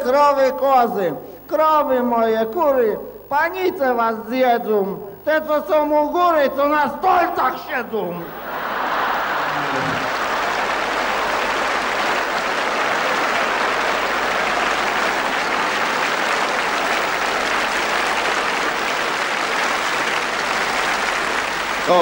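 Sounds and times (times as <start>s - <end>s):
audience applauding: 8.2s - 22.0s.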